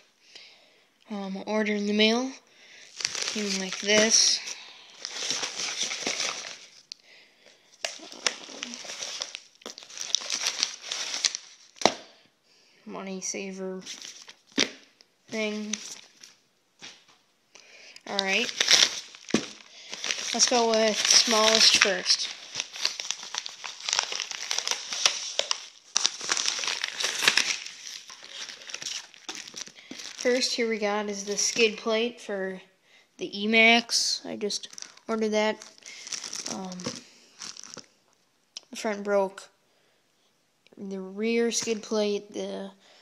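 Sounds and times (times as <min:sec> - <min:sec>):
packaging rustling and crinkling: 0:02.8 - 0:12.1, 0:13.8 - 0:17.2, 0:18.0 - 0:31.9, 0:34.5 - 0:38.0.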